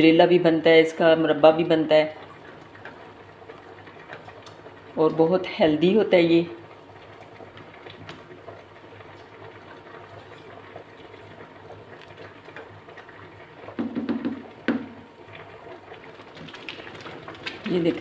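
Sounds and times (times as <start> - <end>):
mixture simmering and bubbling: 0.0 - 18.0
spatula knocking on pan: 13.7 - 15.0.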